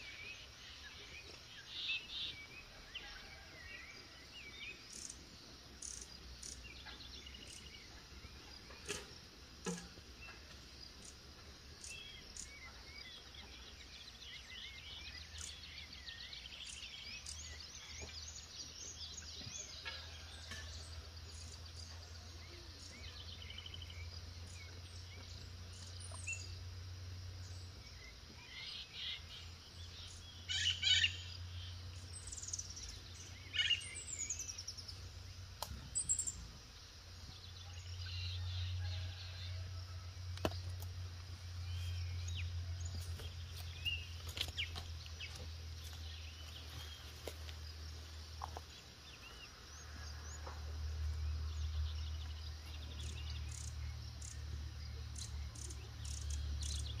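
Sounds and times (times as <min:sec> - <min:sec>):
birds chirping and warbling: 0:00.0 - 0:57.0.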